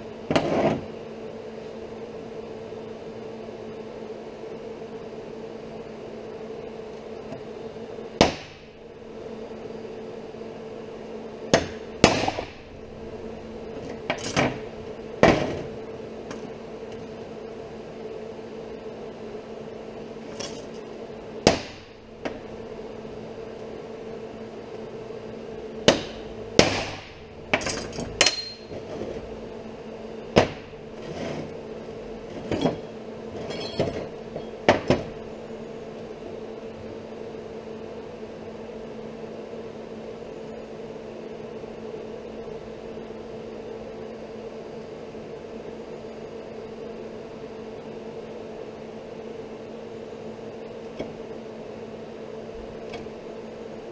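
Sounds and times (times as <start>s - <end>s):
steady background hum: 0.0s - 53.9s
metal clanking on steel workbench: 27.6s - 28.9s, 32.3s - 35.0s.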